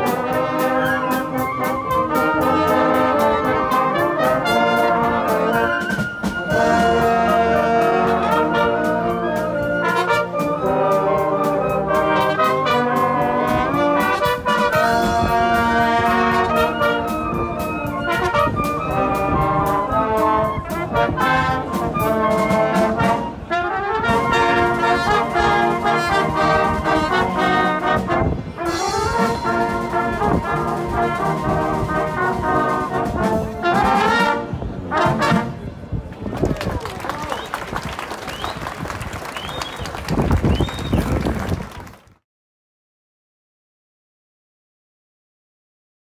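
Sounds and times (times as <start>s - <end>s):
trumpets: 0.0s - 35.9s
wind band playing: 0.0s - 42.0s.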